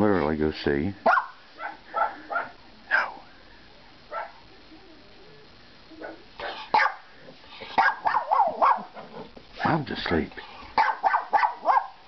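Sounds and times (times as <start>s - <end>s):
dogs barking: 1.0s - 3.2s, 4.1s - 4.4s, 6.0s - 9.7s, 10.7s - 12.0s.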